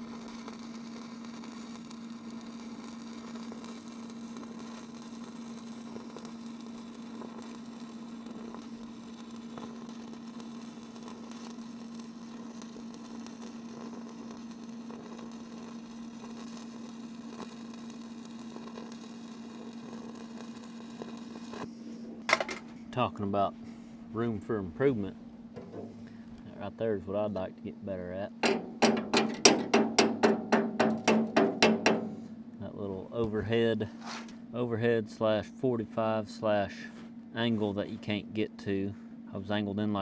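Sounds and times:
welding arc crackling and hissing: 0.0s - 22.3s
steady hum: 0.0s - 40.0s.

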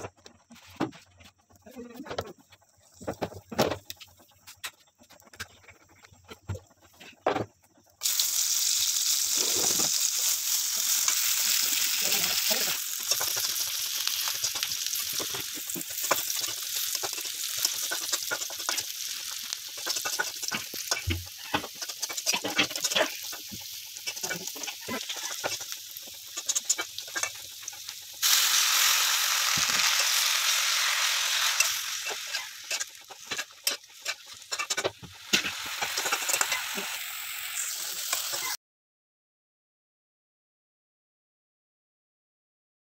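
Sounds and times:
vegetables frying in oil: 8.0s - 38.6s
spatula scraping and tapping pan: 13.0s - 28.0s, 31.4s - 36.8s.

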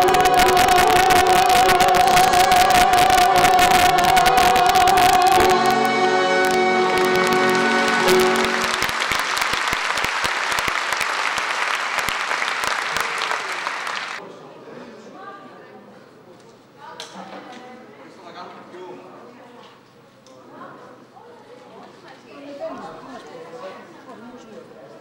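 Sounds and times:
woman singing: 0.0s - 7.3s
live band playing: 0.0s - 9.5s
audience applauding: 0.0s - 14.2s.

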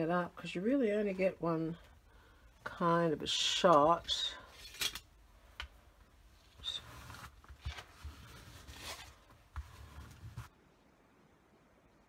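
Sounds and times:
tissue paper rustling: 6.4s - 10.5s.

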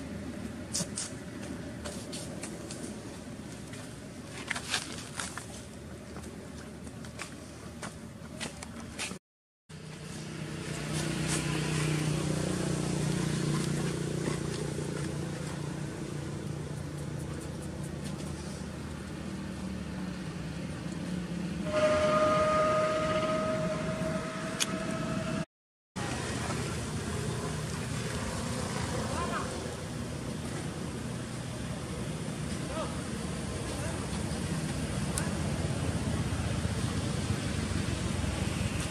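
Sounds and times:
strong steady hum: 12.0s - 38.9s.

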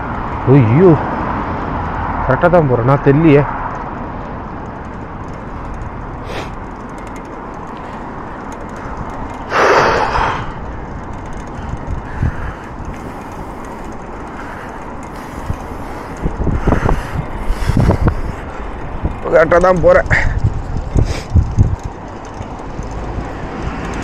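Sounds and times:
wind and road noise: 0.0s - 24.0s
person exhaling breathily: 6.2s - 6.6s, 9.5s - 10.6s.

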